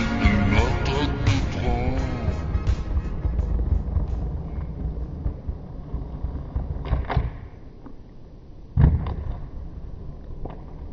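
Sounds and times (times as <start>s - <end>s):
sharp hit: 0.0s - 5.6s
skate wheels rolling on bricks: 2.7s - 10.9s.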